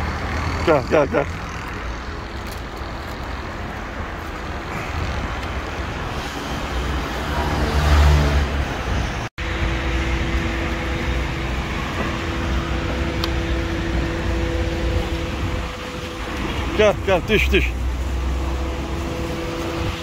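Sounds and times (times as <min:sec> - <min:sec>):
low engine-like drone: 0:04.3 - 0:20.0
steady mechanical rumble: 0:08.8 - 0:20.0.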